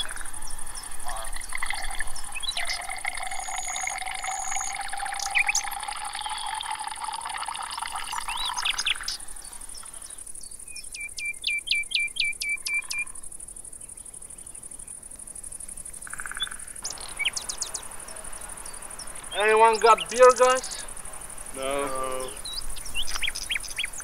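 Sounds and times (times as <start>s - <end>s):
bird chirping: 0.0s - 14.9s, 16.0s - 24.0s
water pouring into a glass: 0.8s - 9.3s.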